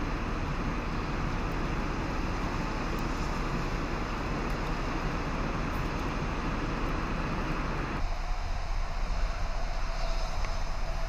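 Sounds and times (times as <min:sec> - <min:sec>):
rain hiss: 0:00.0 - 0:11.0
traffic: 0:00.0 - 0:11.0.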